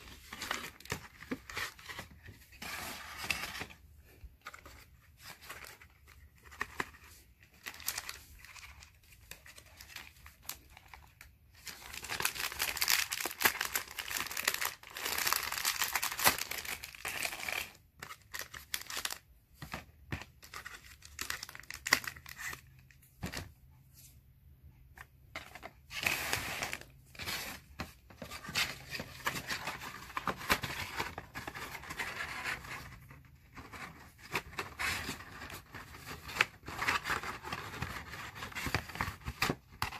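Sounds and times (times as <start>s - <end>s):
plastic wrappers crinkling: 7.6s - 19.3s.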